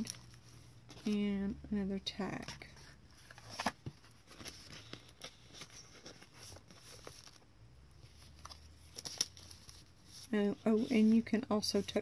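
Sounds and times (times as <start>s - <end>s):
paper rustling: 2.4s - 12.0s.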